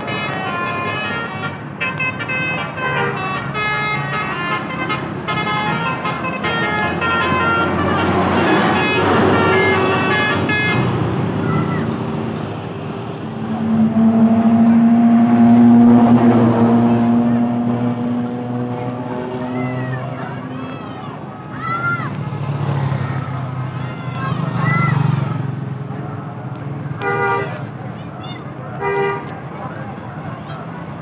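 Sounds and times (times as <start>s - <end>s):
bus horn playing rapid melody: 0.0s - 11.0s, 13.2s - 17.3s, 27.0s - 27.6s
passing traffic: 0.0s - 31.0s
long steady low tone: 13.3s - 15.8s.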